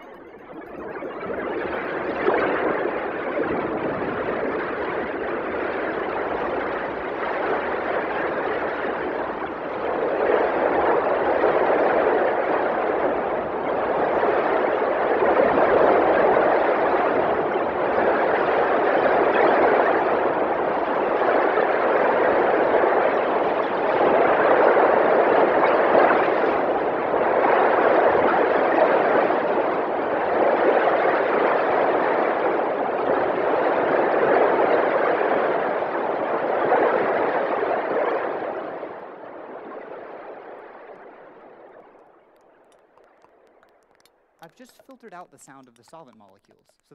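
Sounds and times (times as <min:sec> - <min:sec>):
dense electronic hiss: 0:42.3 - 0:46.9.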